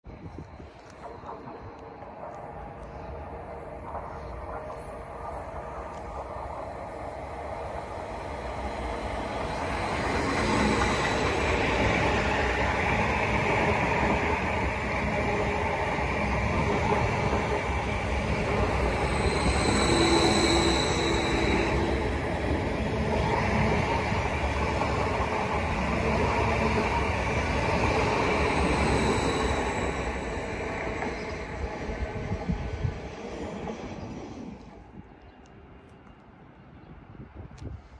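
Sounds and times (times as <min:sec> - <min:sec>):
train wheels rumbling on rail: 0:00.0 - 0:36.2
high wheel squeal: 0:18.7 - 0:22.3, 0:28.2 - 0:31.3.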